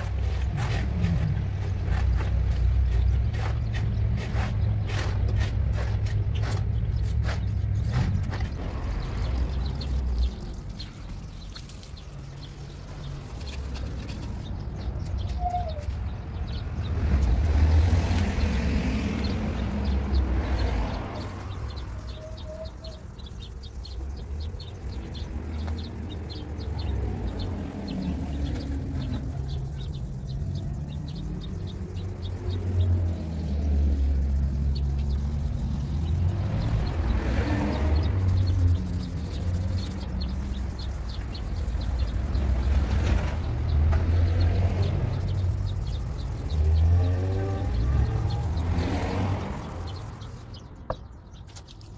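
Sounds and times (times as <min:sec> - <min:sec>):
faint bird chirps: 0:08.3 - 0:16.6, 0:20.5 - 0:43.5.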